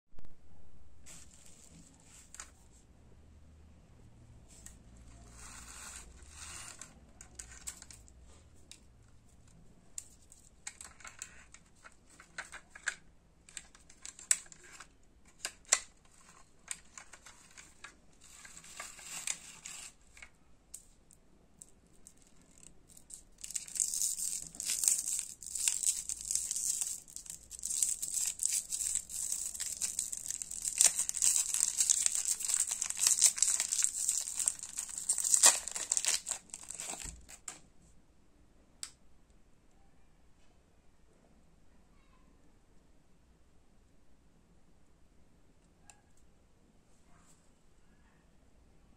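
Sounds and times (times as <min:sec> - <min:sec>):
plastic wrapper crinkling: 0:10.0 - 0:20.9, 0:21.6 - 0:37.6.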